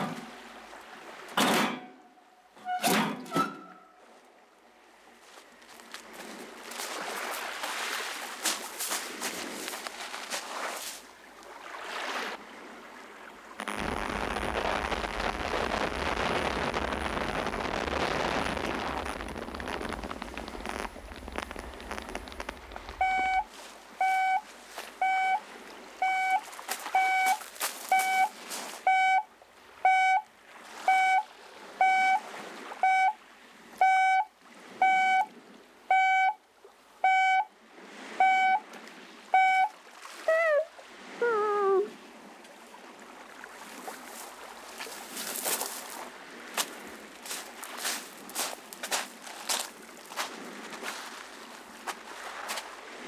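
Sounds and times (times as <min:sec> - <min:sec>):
electronic beeping: 0:23.0 - 0:24.4, 0:25.0 - 0:25.4, 0:26.0 - 0:26.4, 0:27.0 - 0:28.3, 0:28.9 - 0:29.2, 0:30.9 - 0:31.2, 0:31.8 - 0:32.2, 0:32.8 - 0:33.2, 0:33.8 - 0:35.3, 0:38.2 - 0:38.6, 0:39.4 - 0:39.7.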